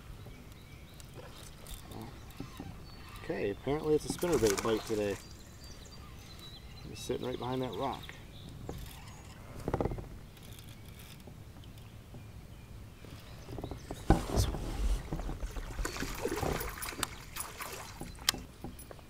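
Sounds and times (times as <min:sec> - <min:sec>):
fish splashing at the surface: 0:04.2 - 0:05.2.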